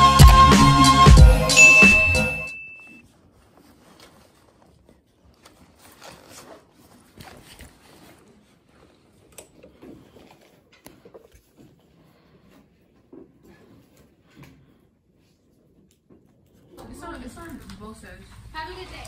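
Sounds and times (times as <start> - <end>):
ringing music note: 1.5 - 3.0
phone and clothing rustling: 1.6 - 19.0.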